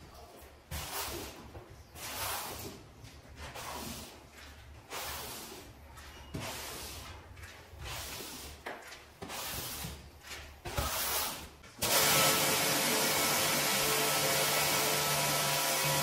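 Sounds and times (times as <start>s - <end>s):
scrubbing strokes on rug: 0.7s - 11.6s.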